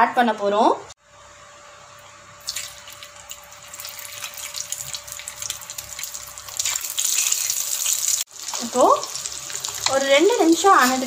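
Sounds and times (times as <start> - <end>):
hot oil sizzling and crackling: 2.4 - 11.0.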